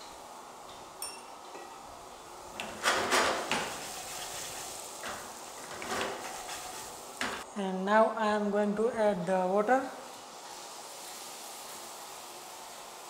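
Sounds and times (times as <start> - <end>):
light clink: 1.0 - 1.8
spatula stirring potatoes in pan: 2.6 - 7.5.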